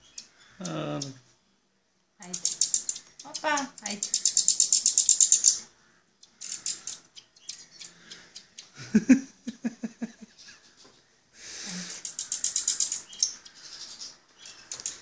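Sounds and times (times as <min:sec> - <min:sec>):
fledglings begging calls: 0:00.0 - 0:01.2, 0:02.2 - 0:08.8, 0:11.6 - 0:15.0.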